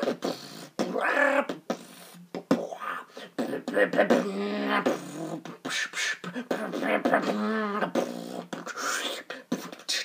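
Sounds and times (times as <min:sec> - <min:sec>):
beatboxing clicks and snares: 0:00.0 - 0:10.0.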